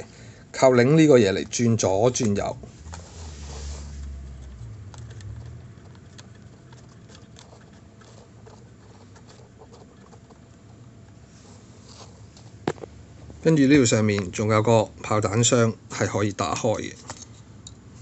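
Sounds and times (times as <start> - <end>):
low handling rumble: 0.7 - 9.0
small clicks and scrapes of gearing: 2.4 - 12.9.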